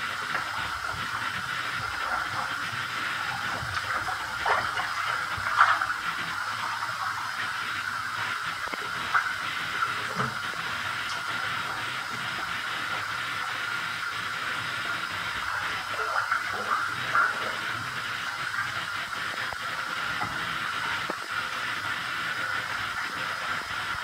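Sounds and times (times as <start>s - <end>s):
tap running into bathtub: 10.0s - 11.3s.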